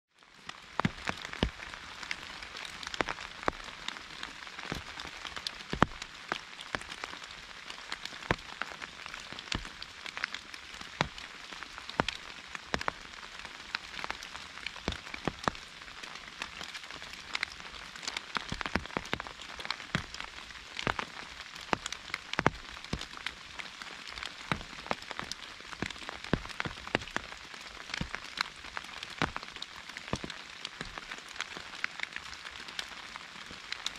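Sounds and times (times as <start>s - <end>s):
raindrops tapping on umbrella: 0.1s - 33.9s
rain hissing: 0.6s - 32.0s.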